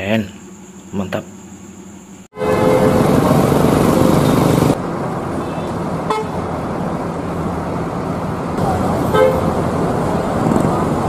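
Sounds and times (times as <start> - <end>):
vehicle horn toot: 2.3 - 3.2, 5.4 - 6.4, 9.1 - 9.6
busy traffic noise: 2.3 - 11.0
bus engines running: 2.4 - 11.0.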